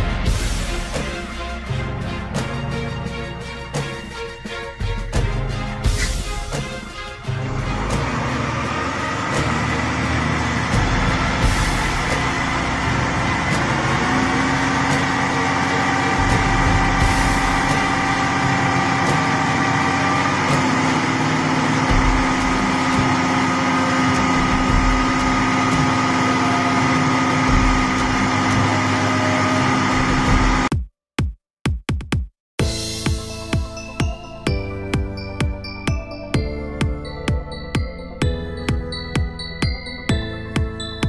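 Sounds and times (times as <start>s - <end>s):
crane diesel engine under load: 6.0s - 30.7s.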